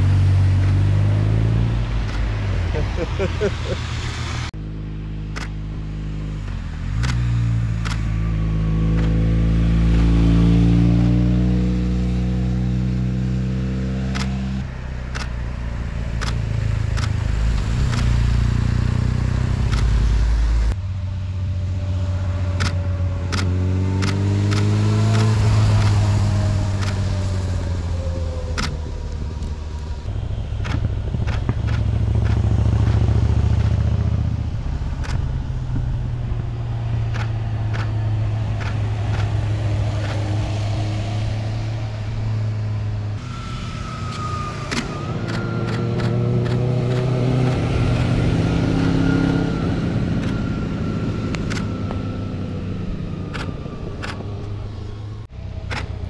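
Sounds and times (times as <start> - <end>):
vehicles passing: 0.0 - 56.0.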